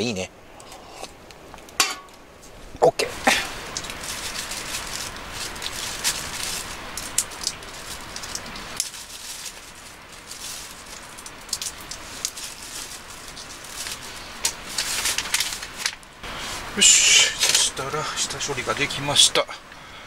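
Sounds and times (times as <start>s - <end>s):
steady hiss: 0.0s - 20.0s
plastic bag rustling: 2.5s - 16.7s.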